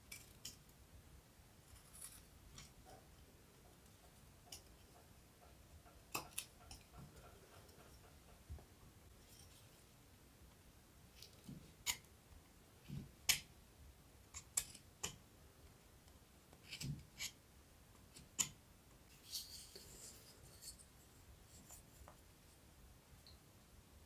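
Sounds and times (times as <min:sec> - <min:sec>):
knife scraping wood: 0:16.6 - 0:17.4.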